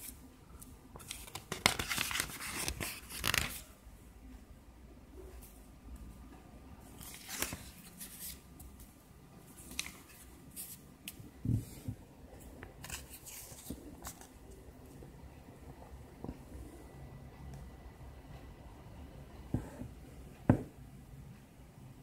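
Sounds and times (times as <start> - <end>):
paper pages rustling: 1.0 - 3.7, 7.0 - 8.9, 9.5 - 14.4.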